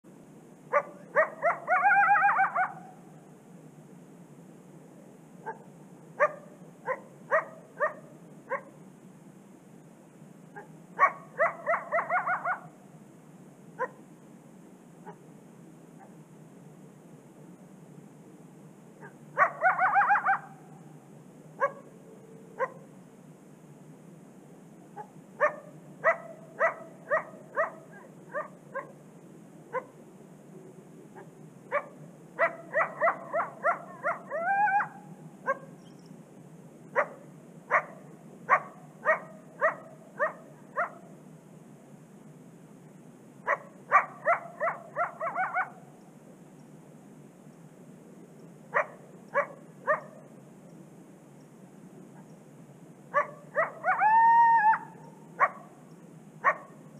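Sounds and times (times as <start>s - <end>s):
coyote barking and yipping: 0.7s - 3.0s, 5.4s - 8.8s, 10.5s - 12.8s, 13.8s - 14.0s, 15.0s - 15.2s, 19.0s - 20.8s, 21.6s - 22.0s, 22.6s - 22.9s, 25.0s - 29.0s, 29.7s - 30.0s, 31.2s - 36.1s, 36.9s - 41.2s, 43.4s - 45.9s, 48.7s - 50.3s, 53.1s - 55.8s, 56.4s - 56.9s
coyote howl: 0.7s - 3.0s, 10.6s - 12.8s, 19.0s - 20.7s, 31.2s - 35.7s, 53.2s - 55.5s.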